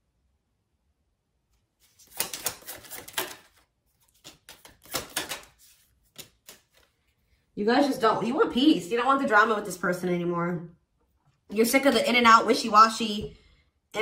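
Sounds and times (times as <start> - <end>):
cards being shuffled: 1.6 - 7.3.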